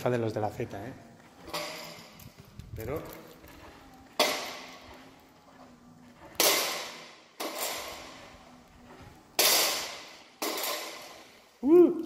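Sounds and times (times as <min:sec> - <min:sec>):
sharp bangs echoing in a room: 0:03.4 - 0:05.2, 0:06.1 - 0:11.6.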